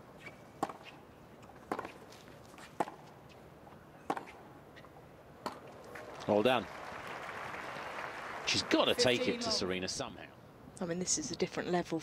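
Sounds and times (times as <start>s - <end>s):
tennis ball struck with rackets: 0.6s - 1.0s, 1.6s - 2.0s, 2.7s - 3.1s, 4.1s - 4.4s, 5.4s - 5.7s.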